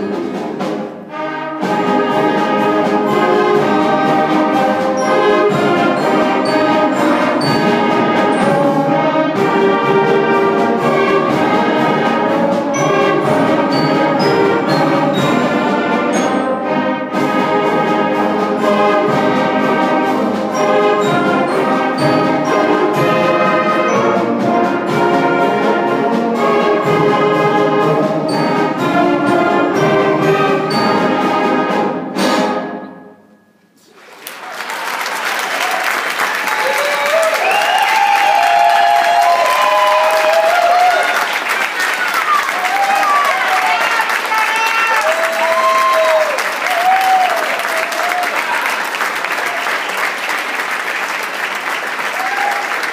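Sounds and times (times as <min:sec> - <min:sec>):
concert band playing: 0:00.0 - 0:33.1.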